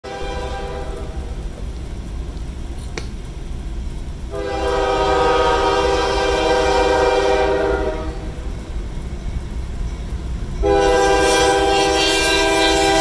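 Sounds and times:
locomotive air horn: 0.0 - 1.3, 4.3 - 8.4, 10.6 - 13.0
train rumbling: 0.0 - 13.0.

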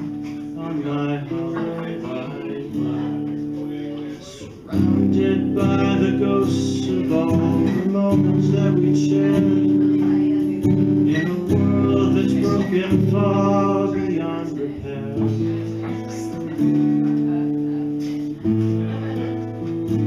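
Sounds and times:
acoustic guitar strumming chords: 0.0 - 20.0
man singing: 0.0 - 20.0.

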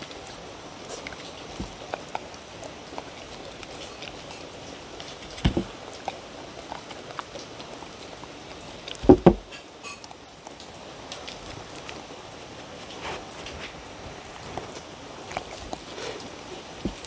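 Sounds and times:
dog licking and chewing: 0.0 - 17.0
wooden bowl knocks: 9.0 - 9.4.

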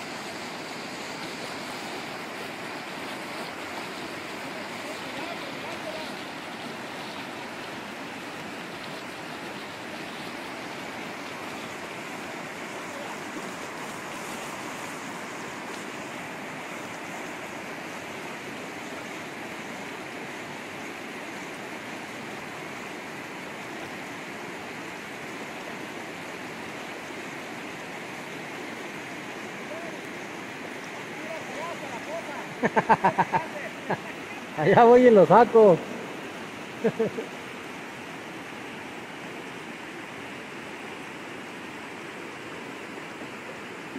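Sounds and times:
river water rushing: 0.0 - 43.9
water spilling down a dam: 0.0 - 43.9.

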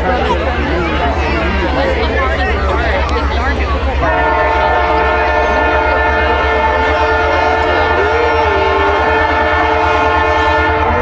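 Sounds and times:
faint crowd voices: 0.0 - 11.0
locomotive air horn chord: 3.9 - 11.0.

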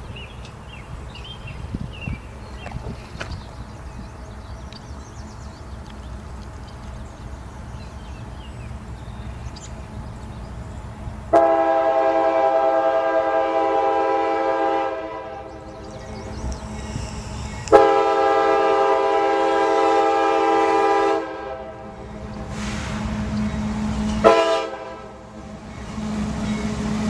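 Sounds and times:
locomotive horn blasts: 11.3 - 15.7, 17.7 - 22.8, 24.1 - 25.3.

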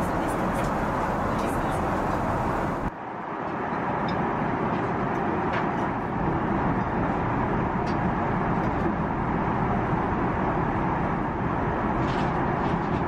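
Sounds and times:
airliner cabin engine rumble: 0.0 - 2.9.

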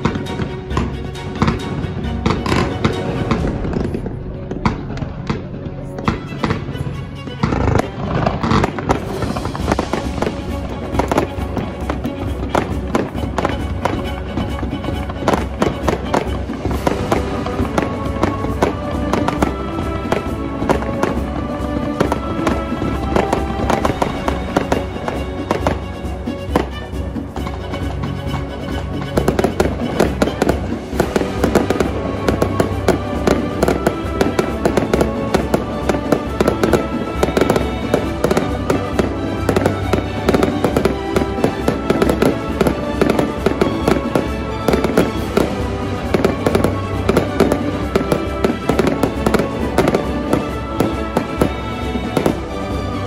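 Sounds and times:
background music: 0.0 - 53.0
fireworks bangs and crackles: 0.0 - 53.0.

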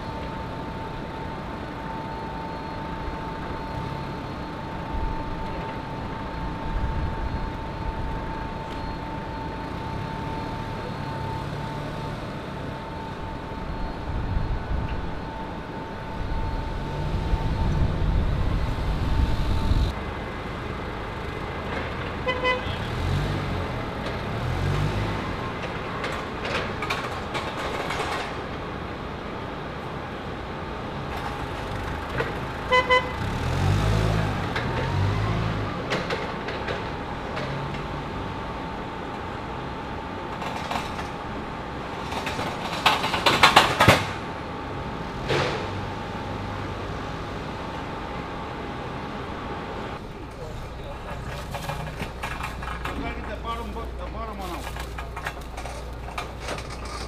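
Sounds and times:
steady high whine: 0.0 - 21.6
low machinery engine rumble: 0.0 - 22.9, 46.1 - 57.0.

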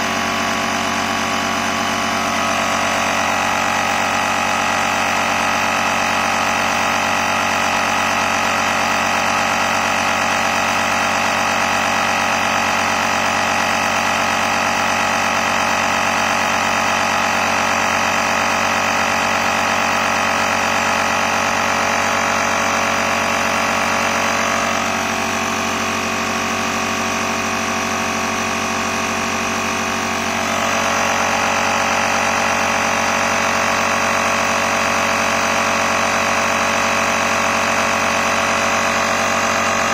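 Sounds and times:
air compressor running: 0.0 - 39.9.

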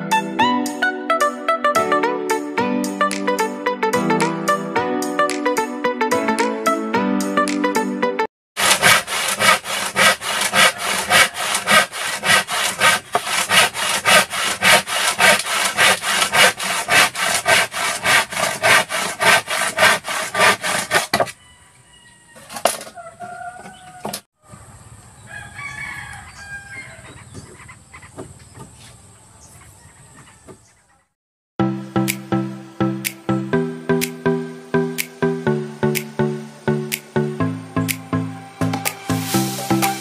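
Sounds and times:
handsaw cutting wood: 8.6 - 21.4
rooster crowing: 21.3 - 24.6, 25.2 - 27.2.

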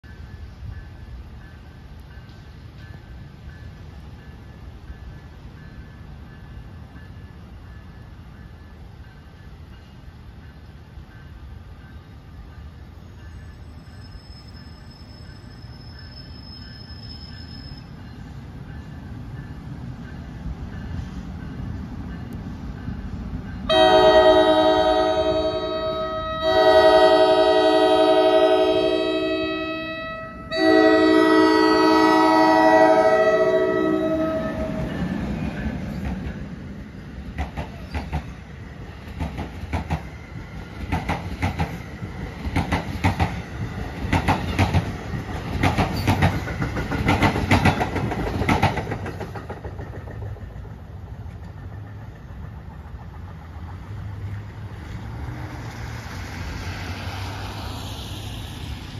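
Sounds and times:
train horn chord: 23.7 - 35.0
train wheels knocking on rail joints: 37.2 - 54.1.

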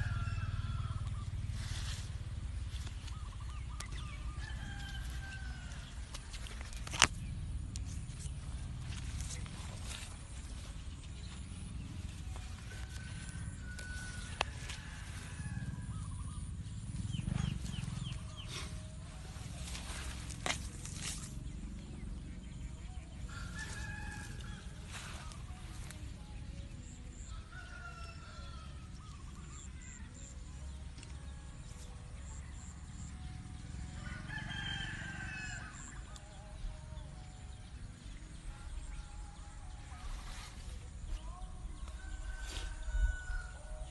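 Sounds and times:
rooster crowing: 0.0 - 1.4, 4.2 - 6.1, 12.6 - 16.5, 23.3 - 25.4, 27.1 - 30.3, 33.9 - 36.2, 41.2 - 43.9
low rumble: 0.0 - 27.5.

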